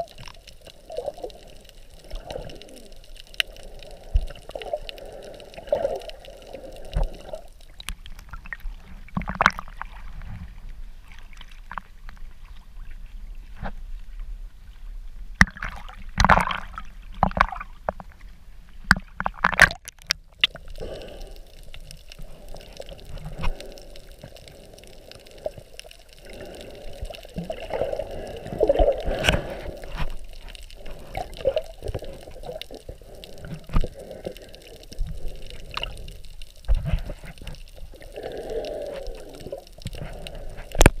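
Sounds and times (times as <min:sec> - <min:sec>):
sea water splashing: 0:00.0 - 0:13.0, 0:18.9 - 0:41.0
underwater clicks and knocks: 0:07.8 - 0:10.5, 0:15.4 - 0:18.2, 0:18.8 - 0:20.6, 0:36.6 - 0:37.7, 0:39.8 - 0:41.0.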